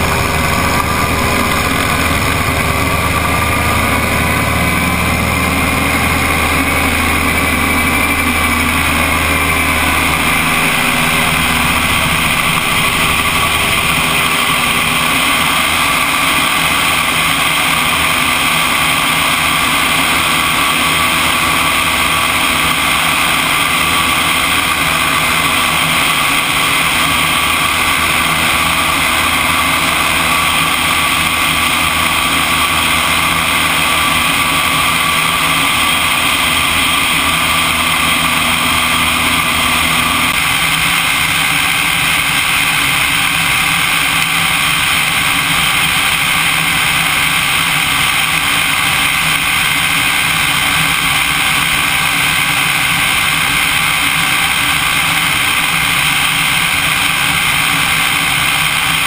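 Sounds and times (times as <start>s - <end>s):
light airplane engine and propeller: 0.0s - 59.0s
loud wind rushing: 0.0s - 59.0s.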